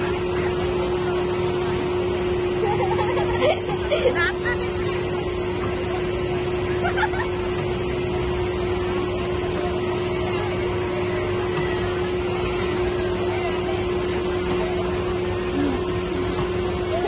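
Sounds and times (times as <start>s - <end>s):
fairground machinery humming: 0.0s - 17.0s.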